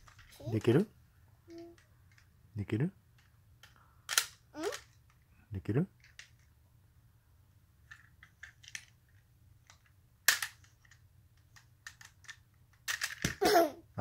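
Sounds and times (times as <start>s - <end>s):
plastic toy clicks and snaps: 3.6s - 4.9s, 9.7s - 13.4s.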